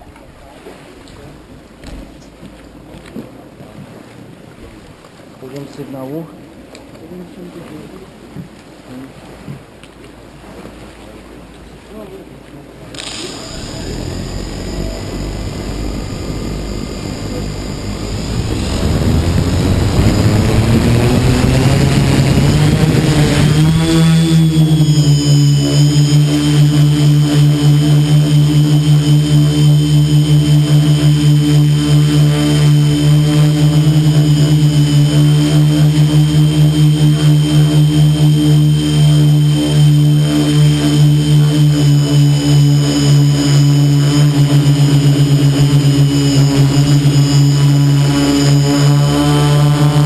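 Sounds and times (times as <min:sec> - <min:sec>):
quadcopter propellers droning: 0:12.9 - 0:50.0.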